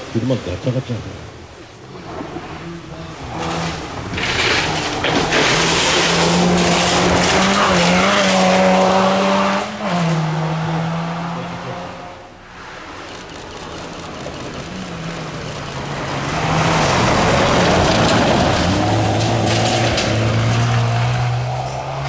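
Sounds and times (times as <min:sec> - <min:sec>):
tyres rushing on gravel: 0:01.8 - 0:09.0, 0:12.6 - 0:21.8
car engine at high revs: 0:01.8 - 0:22.0.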